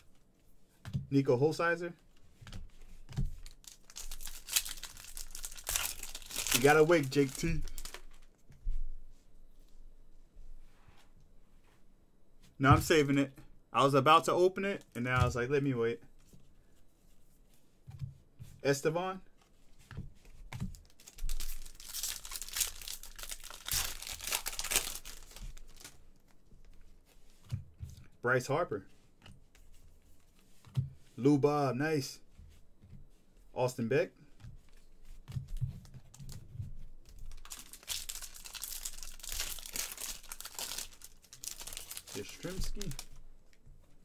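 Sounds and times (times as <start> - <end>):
wrapper tearing and crinkling: 3.4 - 8.2, 20.7 - 26.0, 37.2 - 43.2.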